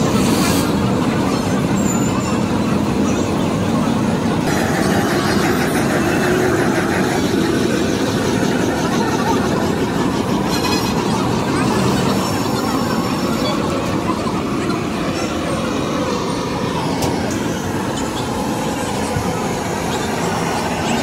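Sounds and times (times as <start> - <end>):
busy street background noise: 0.0 - 21.0.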